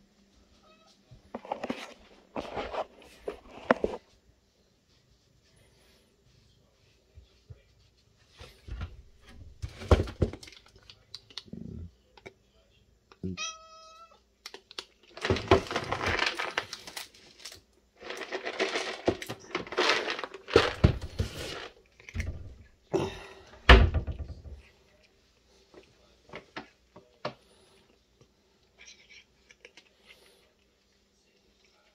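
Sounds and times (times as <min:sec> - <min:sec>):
plastic packaging rustling: 0:15.1 - 0:22.2.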